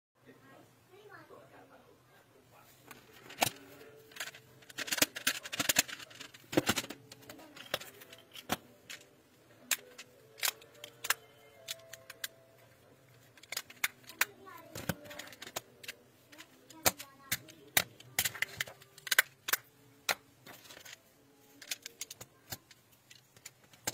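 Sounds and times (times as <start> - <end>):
plastic tiles clicking together: 4.1 - 9.0, 13.3 - 21.0.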